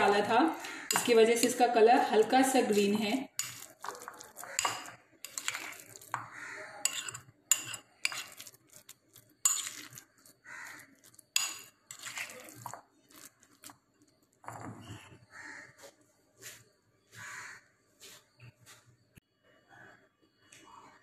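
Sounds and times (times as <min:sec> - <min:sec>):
spoon scraping glass bowl: 0:00.1 - 0:13.8.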